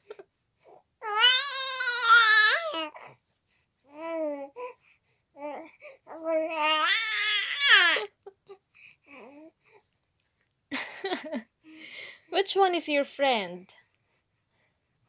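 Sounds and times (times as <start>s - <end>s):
baby crying: 0.0s - 3.1s, 5.4s - 8.1s
baby babbling and cooing: 0.0s - 9.9s.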